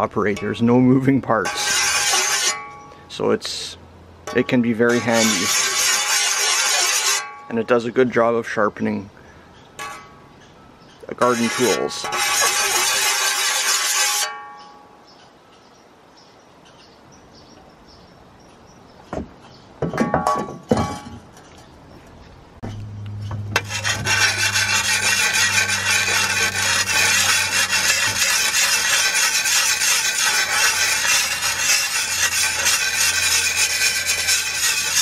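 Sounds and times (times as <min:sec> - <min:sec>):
sharpening stone scraping metal: 0:01.4 - 0:02.8, 0:04.3 - 0:07.3, 0:11.2 - 0:14.3, 0:23.6 - 0:35.0.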